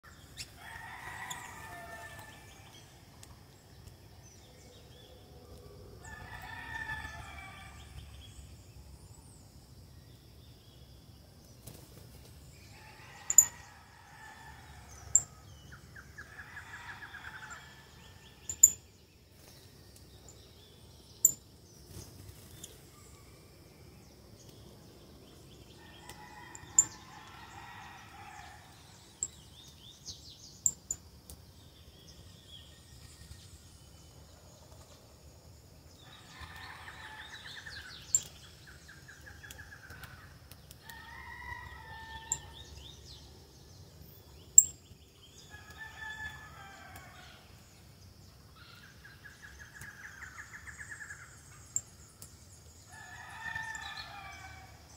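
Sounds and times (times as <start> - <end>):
rooster crowing: 0.6 - 2.6, 6.0 - 8.0, 12.7 - 15.4, 25.8 - 28.8, 40.9 - 42.6, 52.9 - 54.9.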